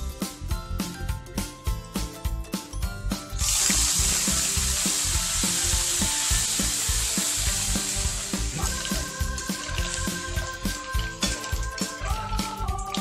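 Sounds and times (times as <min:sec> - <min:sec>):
background music with steady beat: 0:00.0 - 0:13.0
mussels sizzling in hot oil: 0:03.4 - 0:12.0.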